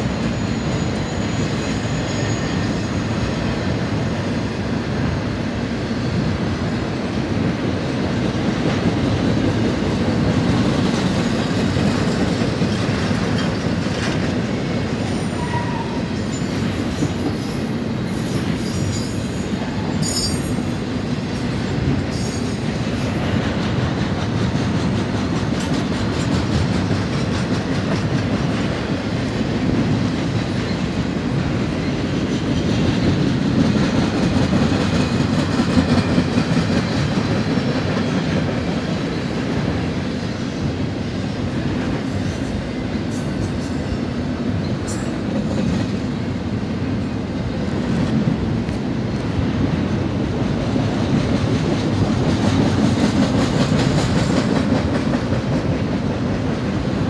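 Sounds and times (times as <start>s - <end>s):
high-pitched wheel squeals: 0.2s - 3.1s, 15.2s - 20.6s
freight train wheels clattering: 6.1s - 57.0s.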